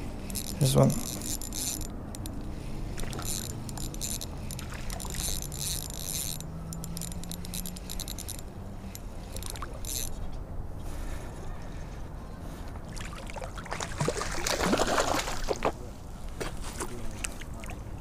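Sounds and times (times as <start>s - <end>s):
fishing reel clicking: 0.2s - 10.2s.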